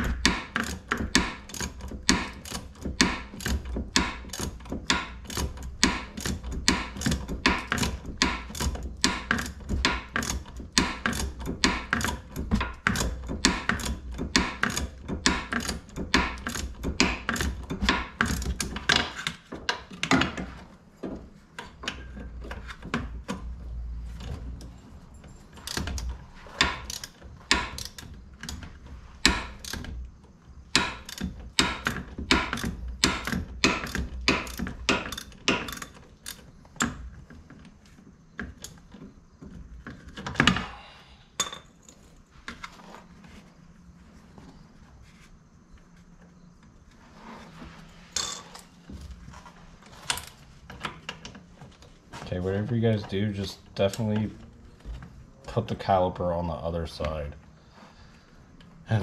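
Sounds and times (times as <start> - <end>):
socket ratchet clicking: 0.0 - 19.4, 25.6 - 37.1.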